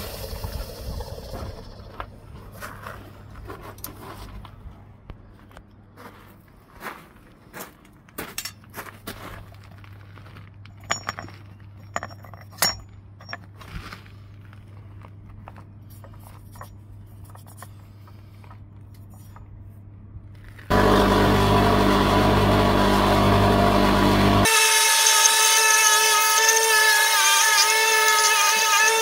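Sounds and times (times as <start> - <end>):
steady low hum: 0.0 - 24.5
metal pieces clinking: 10.7 - 13.5.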